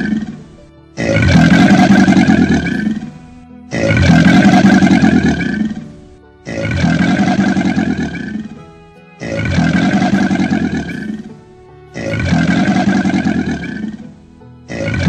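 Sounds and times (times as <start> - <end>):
deep growling roar: 0.0 - 3.1, 3.7 - 5.8, 6.4 - 8.6, 9.2 - 11.3, 11.9 - 14.0, 14.7 - 15.0
music loop: 0.0 - 15.0.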